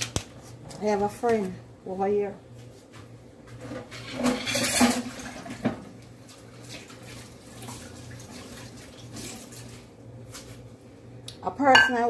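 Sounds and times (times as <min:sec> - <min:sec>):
water running from tap: 0:06.5 - 0:09.8.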